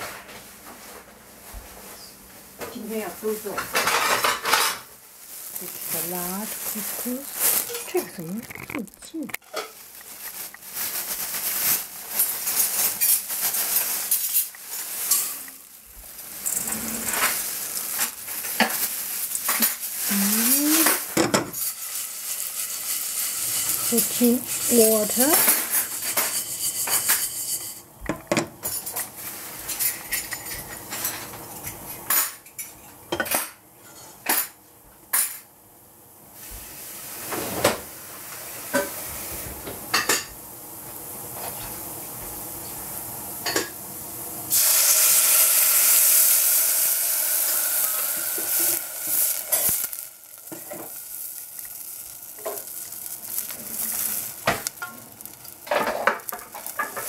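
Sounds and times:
water sizzling in hot pan: 2.8 - 32.5, 36.3 - 57.0
pan clinking and scraping: 11.5 - 15.6, 20.6 - 34.1.

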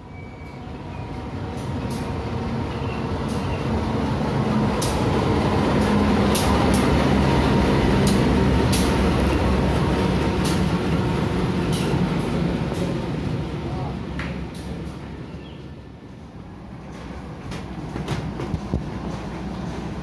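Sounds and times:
locomotive engine rumble: 0.0 - 20.0
train wheels clacking: 1.5 - 13.1.

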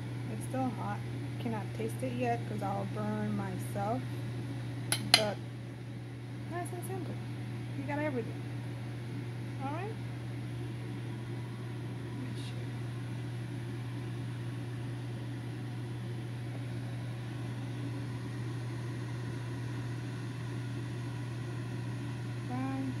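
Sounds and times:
small motor humming: 11.0 - 23.0.

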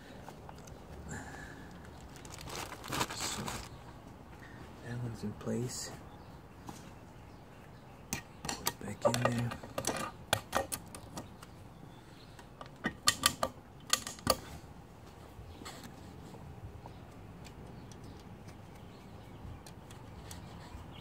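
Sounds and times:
metallic clicks of tools and parts: 8.1 - 11.5.

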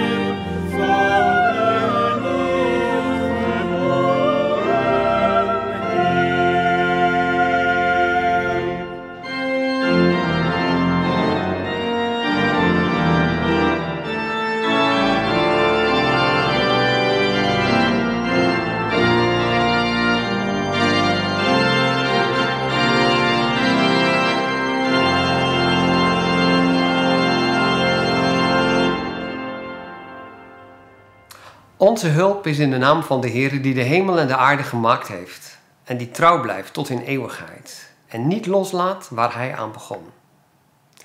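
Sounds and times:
choir singing: 0.0 - 10.2
church pipe organ chords: 0.0 - 35.0.

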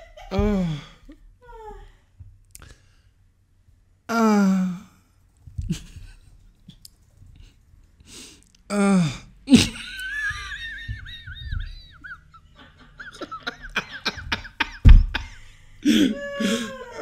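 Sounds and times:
person laughing squealing: 9.5 - 12.4, 13.5 - 17.0
loud bump: 14.8 - 15.3
gasping breaths: 15.2 - 17.0.

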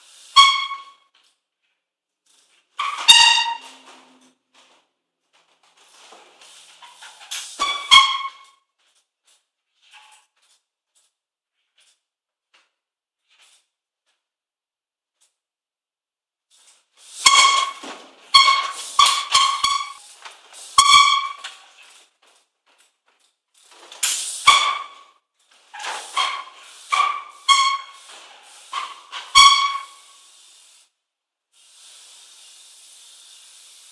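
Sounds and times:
bike brakes squealing: 0.0 - 1.2, 2.8 - 4.4, 6.0 - 8.8, 16.6 - 21.9, 23.6 - 30.6
wheels knocking on wooden planks: 17.2 - 25.1, 28.7 - 30.0.

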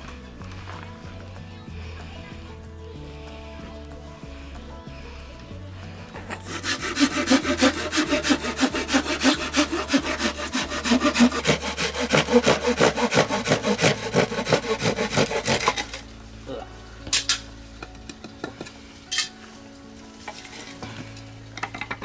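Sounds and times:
background music: 0.0 - 22.0
hand saw cutting wood: 6.3 - 16.1.

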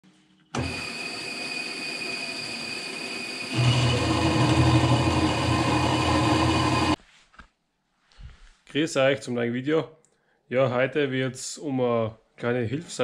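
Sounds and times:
band saw cutting metal: 0.6 - 7.0.

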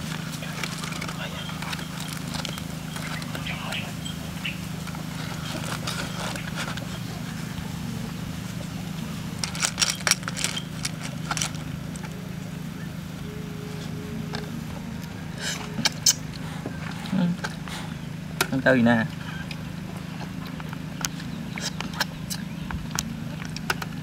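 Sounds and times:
steady low hum: 0.0 - 24.0
foil crinkling: 9.4 - 12.2.

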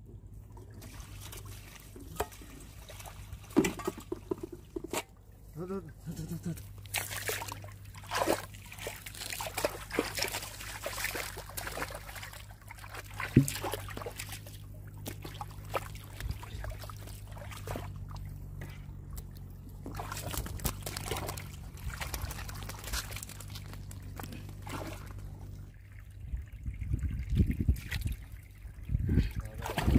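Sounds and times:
low hum: 0.0 - 29.9
hands splashing in water: 6.6 - 18.0
sharp water slap: 6.8 - 12.4, 13.0 - 16.4.

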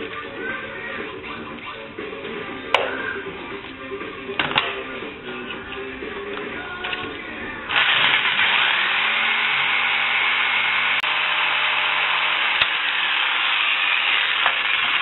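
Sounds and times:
electric jigsaw cutting plastic: 7.7 - 15.0.

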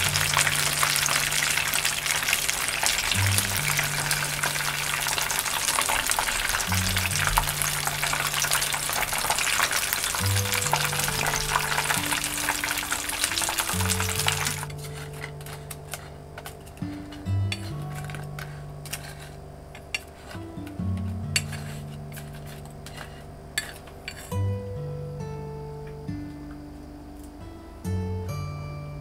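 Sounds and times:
chicken deep-frying in oil: 0.0 - 16.1
background music with bass line: 2.9 - 5.4, 6.0 - 19.6.

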